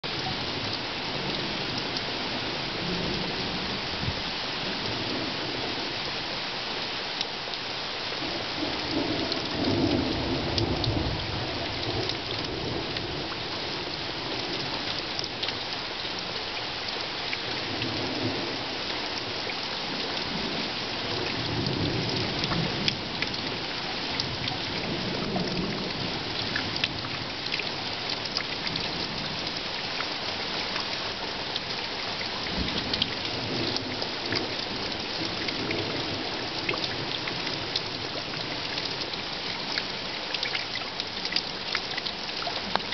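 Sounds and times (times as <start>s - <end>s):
steady rain hissing: 0.0s - 42.9s
low thunder rumbling: 8.2s - 14.6s.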